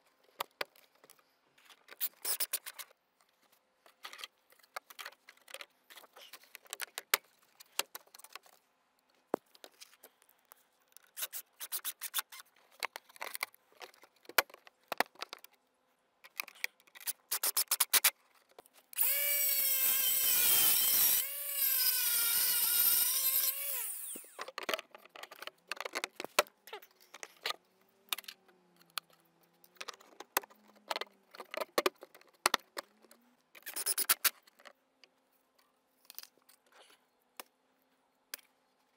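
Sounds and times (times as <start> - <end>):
plastic parts clicking: 10.9 - 15.6, 24.2 - 34.8
cordless drill whining: 19.0 - 24.4.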